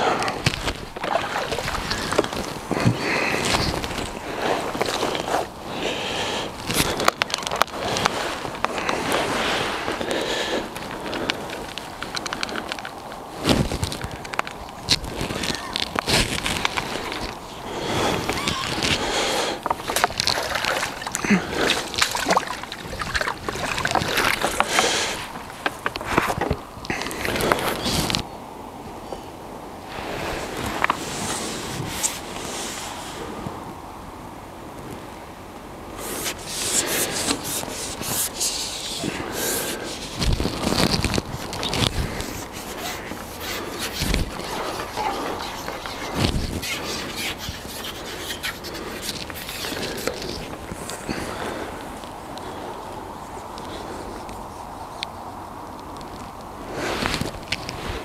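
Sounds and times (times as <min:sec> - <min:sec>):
handling noise rubbing and scraping: 0:00.0 - 0:05.6, 0:06.5 - 0:28.2, 0:29.9 - 0:33.3, 0:36.0 - 0:52.1, 0:55.9 - 0:58.0
water splashing and sloshing: 0:00.0 - 0:28.2.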